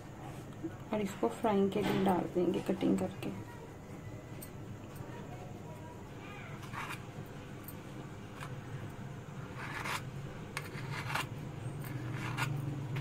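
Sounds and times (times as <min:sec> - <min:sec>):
knife scraping steel bowl: 0:06.6 - 0:07.1, 0:09.5 - 0:13.0.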